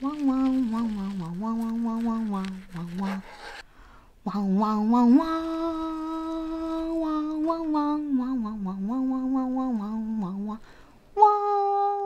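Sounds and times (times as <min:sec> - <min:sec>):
woman humming: 0:04.3 - 0:10.6, 0:11.2 - 0:12.0.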